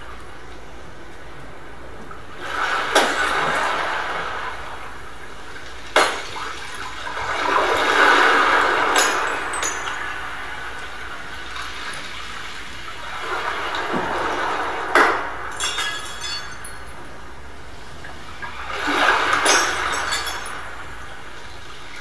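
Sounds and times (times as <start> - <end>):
rushing water-like electronic noise: 0.0 - 22.0
high glassy clinks: 15.5 - 16.9, 19.4 - 20.8.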